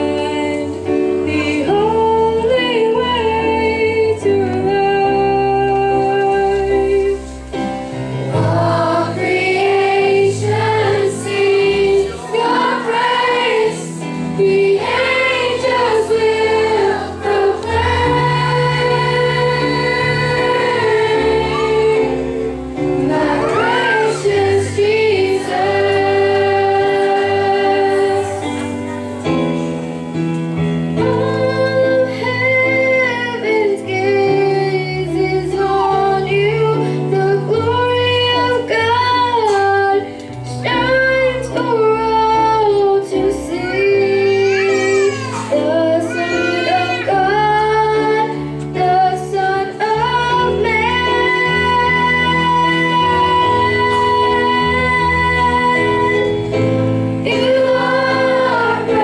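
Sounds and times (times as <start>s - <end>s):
instrumental accompaniment: 0.0s - 59.0s
girl singing into a microphone: 31.0s - 56.3s.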